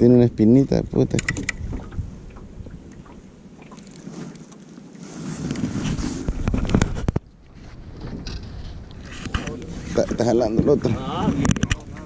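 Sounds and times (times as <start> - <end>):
wind on microphone: 0.0 - 4.4, 5.0 - 12.0
sharp clicks: 1.1 - 1.6.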